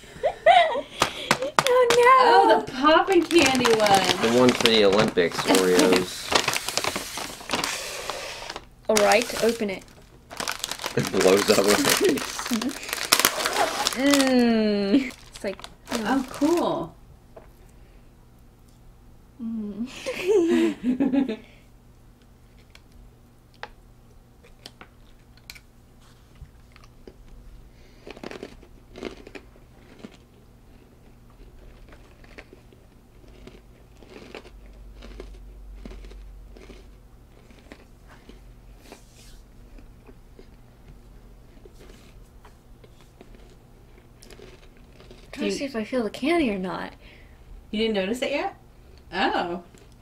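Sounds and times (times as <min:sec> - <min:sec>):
people chewing crunchy cookies: 0:00.5 - 0:16.8, 0:22.3 - 0:45.9, 0:48.8 - 0:50.0.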